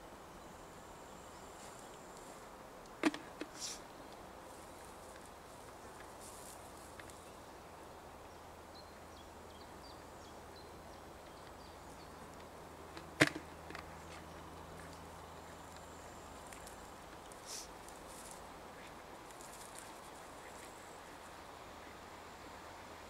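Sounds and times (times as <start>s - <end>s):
faint low hum: 0.0s - 23.0s
soft rustle: 1.4s - 2.6s, 3.3s - 7.4s, 13.8s - 21.4s.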